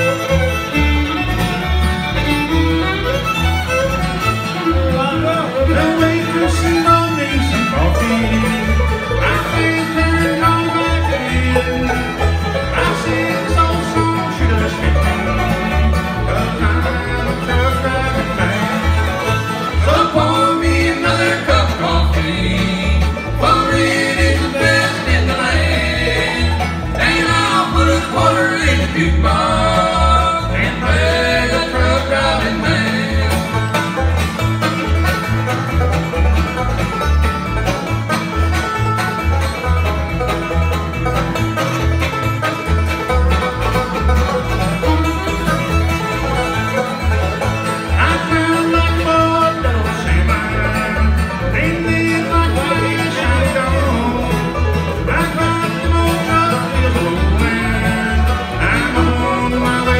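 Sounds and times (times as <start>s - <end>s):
acoustic guitar: 0.0s - 59.9s
banjo: 0.0s - 59.9s
fiddle melody: 0.0s - 59.9s.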